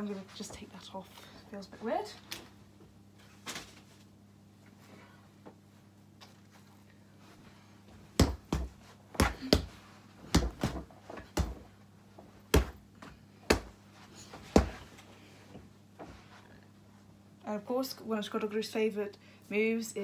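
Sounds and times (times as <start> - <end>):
faint steady hum: 0.0 - 20.0
fists punching a punch bag: 8.2 - 11.6, 12.5 - 12.8, 13.5 - 13.8, 14.5 - 14.8.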